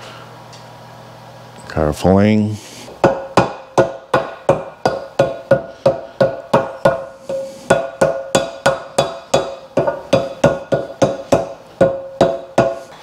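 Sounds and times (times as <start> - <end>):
rubber mallet tapping metal: 3.0 - 12.9.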